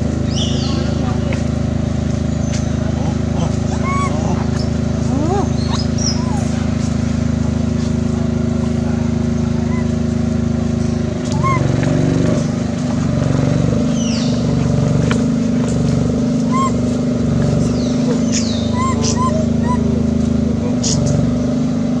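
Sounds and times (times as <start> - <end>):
engine droning hum: 0.0 - 22.0.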